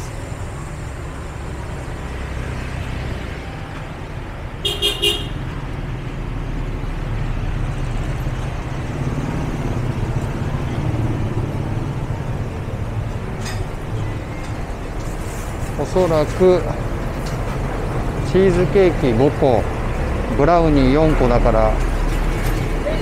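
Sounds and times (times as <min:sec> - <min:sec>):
road traffic rumble: 0:00.0 - 0:23.0
vehicle horn beeps: 0:04.6 - 0:05.5.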